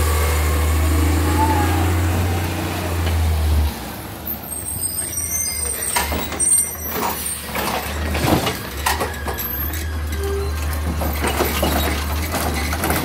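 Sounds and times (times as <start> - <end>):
truck engine running low: 0.0 - 4.3.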